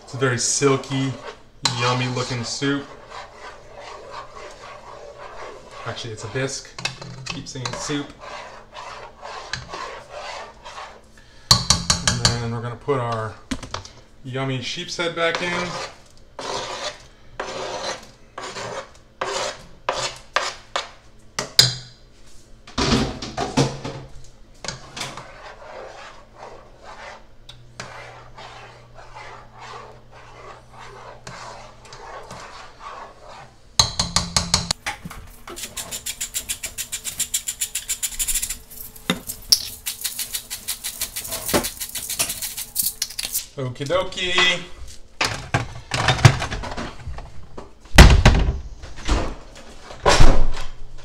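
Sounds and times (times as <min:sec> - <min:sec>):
stirring thick soup in pot: 0:00.0 - 0:12.5, 0:15.1 - 0:21.1, 0:24.5 - 0:42.8
spoon scraping cutting board: 0:00.1 - 0:11.0, 0:15.2 - 0:20.9, 0:24.6 - 0:27.2, 0:27.8 - 0:34.6, 0:35.5 - 0:43.4
pepper mill grinding: 0:35.5 - 0:43.4.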